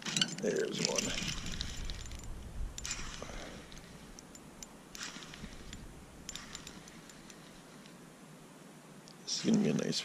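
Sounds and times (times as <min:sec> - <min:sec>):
faint ticks of fishing reel: 0:01.4 - 0:08.0.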